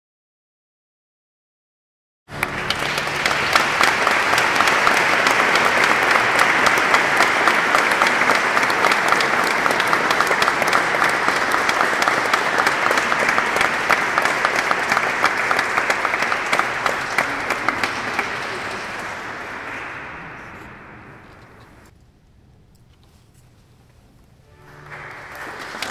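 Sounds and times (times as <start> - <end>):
audience applauding: 2.3 - 21.9, 24.5 - 25.9.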